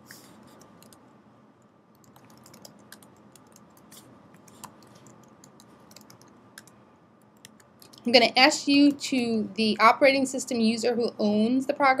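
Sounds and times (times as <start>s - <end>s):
low steady hiss: 0.0s - 12.0s
keyboard typing: 0.1s - 1.0s, 1.9s - 8.2s.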